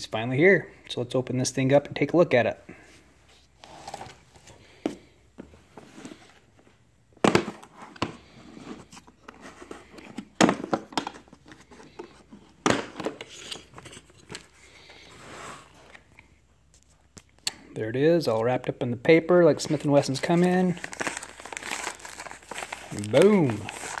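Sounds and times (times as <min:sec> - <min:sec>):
paper rustling: 0:19.6 - 0:24.0.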